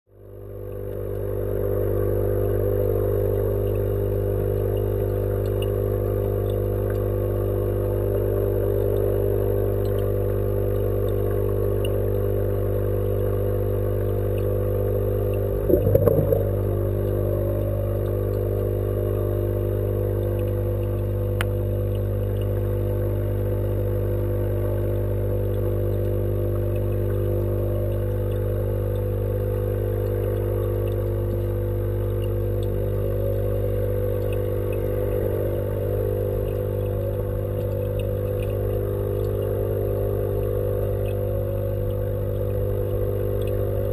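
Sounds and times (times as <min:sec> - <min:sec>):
low equipment hum through water: 0:00.0 - 0:43.9
click: 0:06.4 - 0:07.1, 0:09.8 - 0:10.1, 0:10.7 - 0:12.2, 0:20.2 - 0:22.7, 0:30.0 - 0:32.8, 0:36.4 - 0:39.5, 0:40.8 - 0:43.7
rumbling disturbance: 0:15.7 - 0:16.8.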